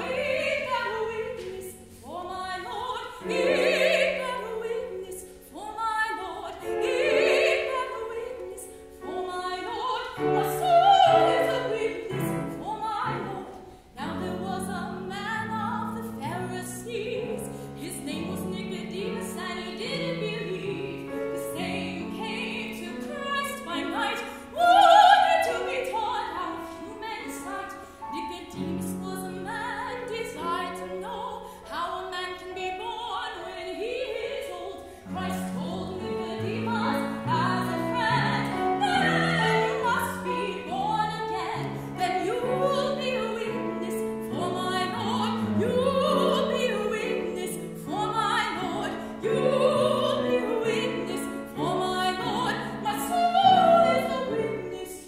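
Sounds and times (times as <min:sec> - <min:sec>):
piano accompaniment: 0:00.0 - 0:55.0
woman singing operatically: 0:00.0 - 0:55.0.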